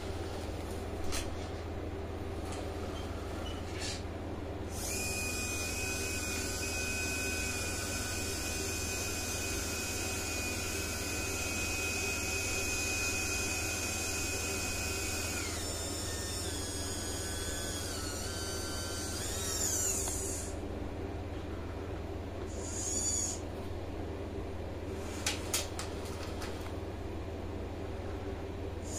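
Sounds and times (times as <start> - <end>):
servo motor whining: 4.7 - 20.6, 22.5 - 23.4.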